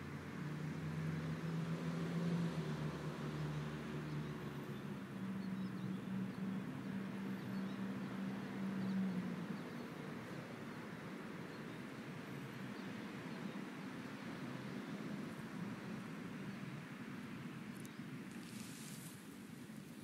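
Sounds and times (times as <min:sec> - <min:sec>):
low engine hum: 0:00.0 - 0:20.0
outdoor background hiss: 0:07.9 - 0:20.0.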